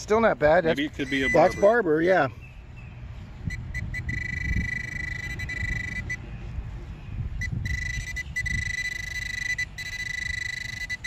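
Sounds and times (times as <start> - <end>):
high-pitched electronic tone: 0.7 - 1.8, 3.5 - 6.2, 7.4 - 11.0.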